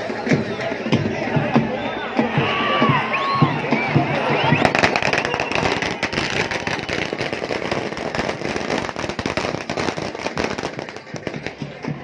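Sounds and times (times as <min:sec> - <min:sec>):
firecrackers popping: 0:03.2 - 0:12.0.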